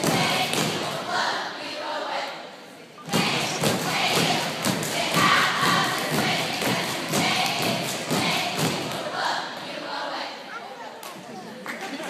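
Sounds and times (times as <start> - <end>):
echoing thumps in gym: 0.0 - 1.3, 3.1 - 9.7.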